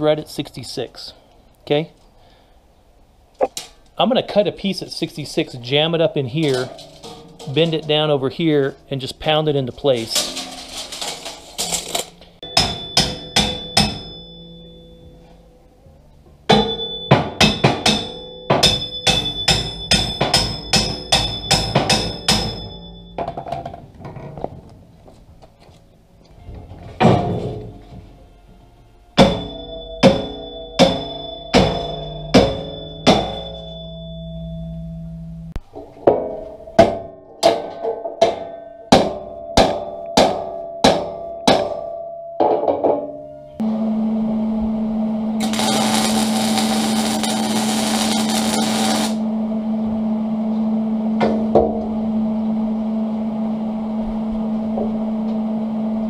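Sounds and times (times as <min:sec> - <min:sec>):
hammer striking steel tube: 0:12.4 - 0:14.5, 0:16.5 - 0:23.6, 0:29.2 - 0:33.9, 0:36.1 - 0:41.9.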